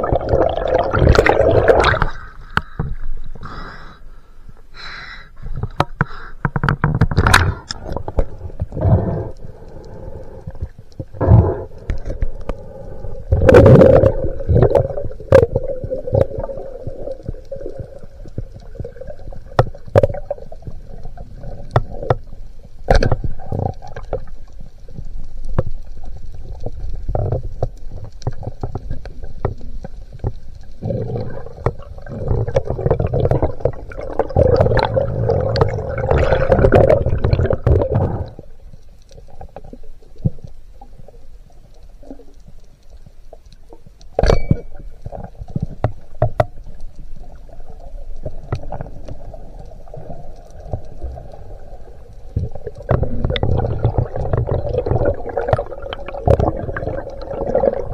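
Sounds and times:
water rushing: 0.0 - 2.2, 30.9 - 38.5, 47.6 - 57.9
sharp clicks and knocks: 5.6 - 8.7
faint steady hum: 7.3 - 57.9.

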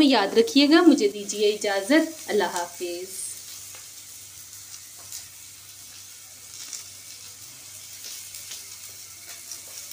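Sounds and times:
hot oil sizzling: 0.0 - 9.9
soft crackles: 2.1 - 9.9.

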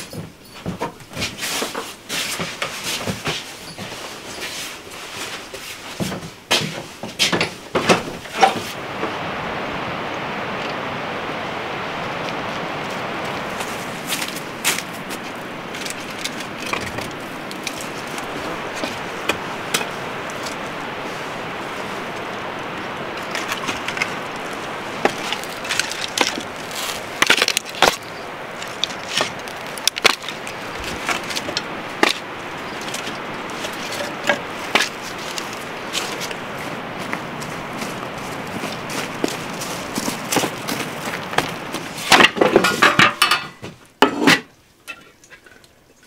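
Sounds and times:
steady rushing background noise: 0.0 - 44.0
firewood logs knocking together: 14.0 - 20.6, 23.2 - 36.4, 37.0 - 45.5.

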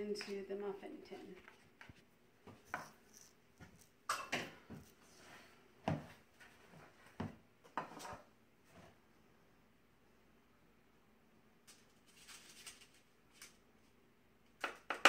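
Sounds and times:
spoon knocking and scraping bowl: 2.5 - 4.8, 7.7 - 8.3.

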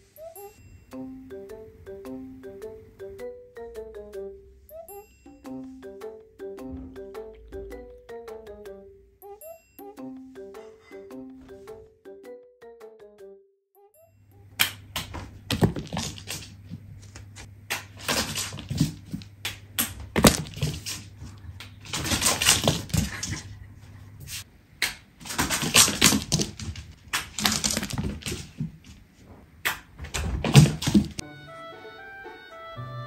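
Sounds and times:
cat paws scrabbling: 15.0 - 23.6, 25.2 - 29.2, 29.9 - 31.2.

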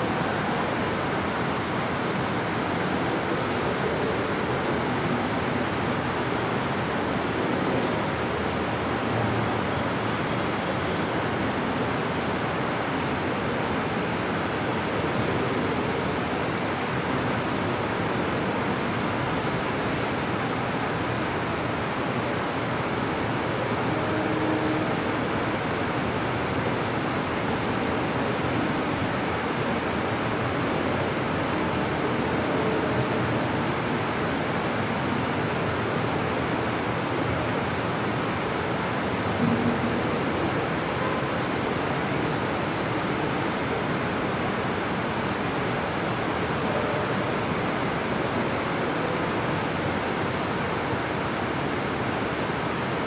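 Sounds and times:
fan hiss: 0.0 - 53.0
faint high whine: 23.0 - 44.2.

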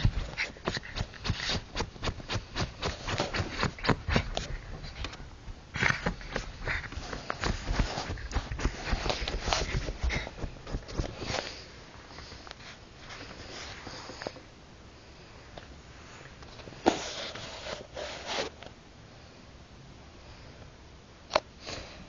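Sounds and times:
dog sniffing: 0.0 - 5.2, 5.8 - 11.6.

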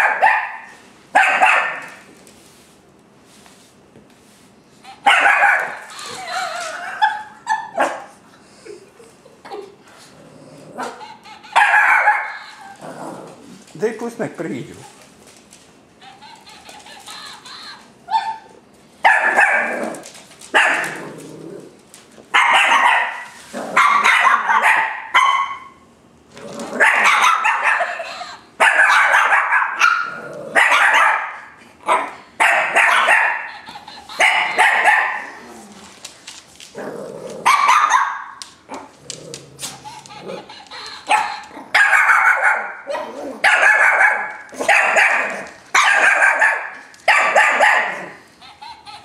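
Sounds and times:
dogs barking: 0.0 - 2.0, 5.0 - 5.8, 10.8 - 12.4, 18.1 - 21.1, 22.3 - 25.8, 26.8 - 28.0, 28.6 - 35.4, 37.4 - 38.9, 40.1 - 48.3.

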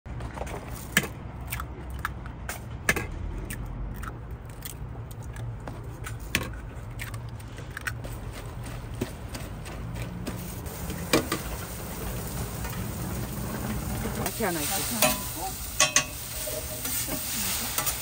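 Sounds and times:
cooking utensils clicking: 14.9 - 18.0.

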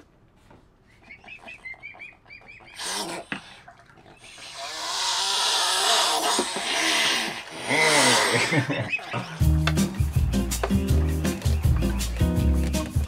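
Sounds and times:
cygnets peeping: 0.9 - 3.0, 7.8 - 13.0.

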